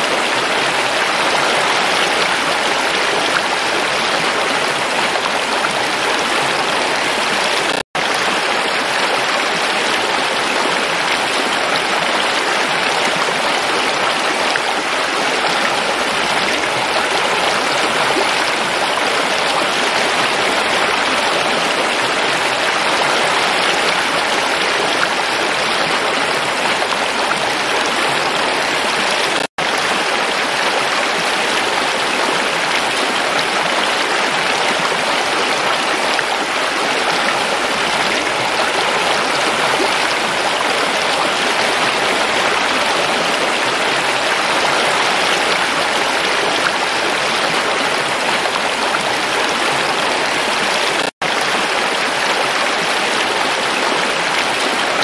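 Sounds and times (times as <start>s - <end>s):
stream flowing over rocks: 0.0s - 55.0s.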